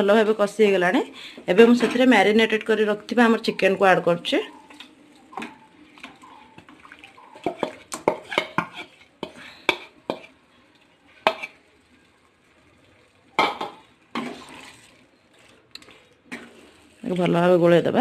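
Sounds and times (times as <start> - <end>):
wooden spatula scraping metal pan: 4.7 - 11.6, 13.4 - 17.4.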